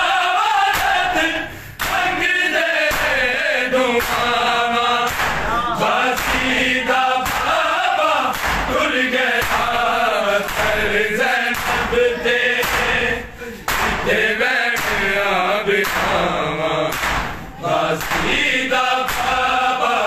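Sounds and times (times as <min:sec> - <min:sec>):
crowd of men chanting: 0:00.0 - 0:20.0
hands slapping chests: 0:00.7 - 0:01.0, 0:01.8 - 0:02.1, 0:02.8 - 0:03.2, 0:04.0 - 0:04.4, 0:05.0 - 0:05.5, 0:06.1 - 0:06.6, 0:07.2 - 0:07.6, 0:08.2 - 0:08.8, 0:09.4 - 0:09.8, 0:10.4 - 0:10.9, 0:11.5 - 0:12.0, 0:12.6 - 0:14.1, 0:14.8 - 0:15.2, 0:15.8 - 0:16.3, 0:16.9 - 0:17.4, 0:18.0 - 0:18.4, 0:19.0 - 0:19.5.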